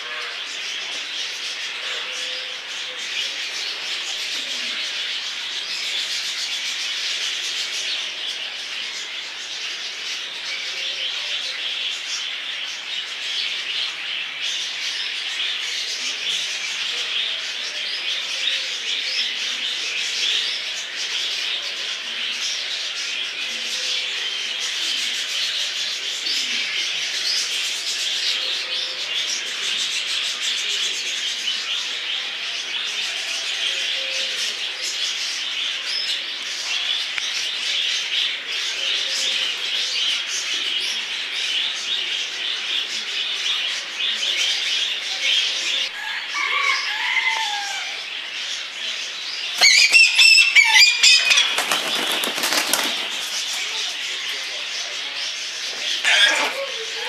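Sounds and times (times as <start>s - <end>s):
small birds chirping and twittering: 0.0s - 57.0s
bird falling call: 49.6s - 54.0s
wing flapping: 51.2s - 54.1s.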